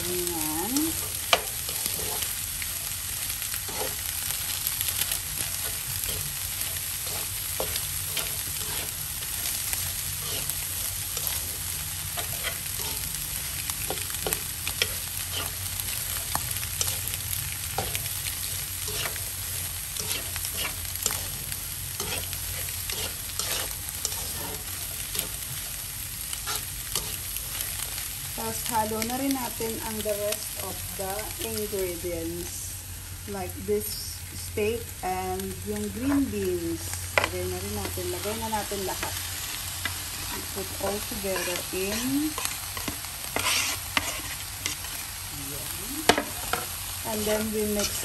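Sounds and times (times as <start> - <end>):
vegetables sizzling in a wok: 0.0 - 48.0
spatula scraping and tapping pan: 41.3 - 45.0.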